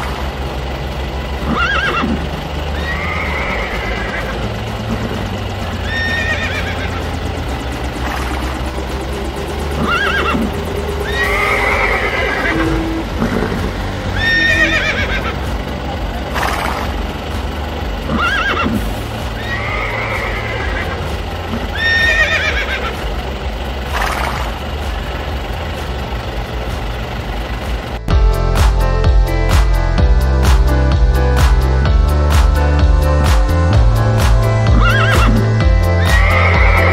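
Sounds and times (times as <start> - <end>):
steady low hum: 0.0 - 36.9
horse whinnying: 1.5 - 2.2, 2.8 - 4.3, 5.9 - 6.9, 9.8 - 13.6, 14.2 - 15.3, 18.1 - 18.8, 19.4 - 20.9, 21.6 - 22.9, 34.7 - 35.4, 36.0 - 36.9.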